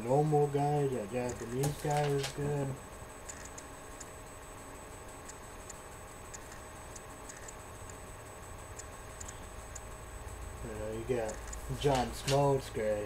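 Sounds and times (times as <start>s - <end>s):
low hum: 0.0s - 13.0s
faint light ticks: 8.8s - 9.9s.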